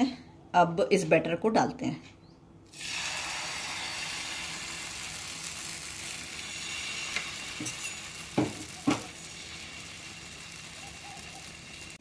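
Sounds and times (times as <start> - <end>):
batter sizzling in hot oil: 2.7 - 12.0.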